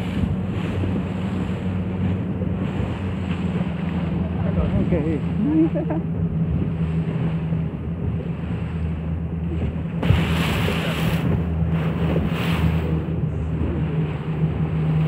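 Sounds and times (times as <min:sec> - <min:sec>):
boat engine droning: 0:00.0 - 0:15.0
water rushing and splashing: 0:00.0 - 0:15.0.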